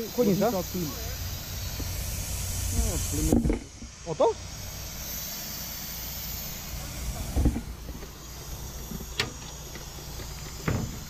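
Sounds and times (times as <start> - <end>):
low engine rumble: 0.0 - 11.0
radiator leaking hiss: 0.0 - 11.0.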